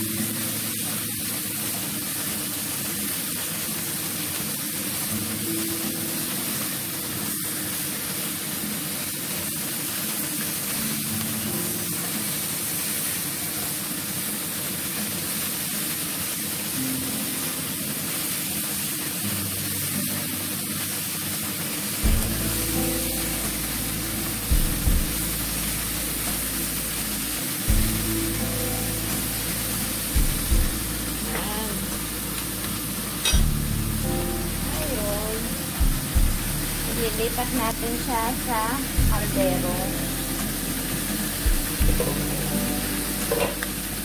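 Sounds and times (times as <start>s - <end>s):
food sizzling in a frying pan: 0.0s - 44.0s.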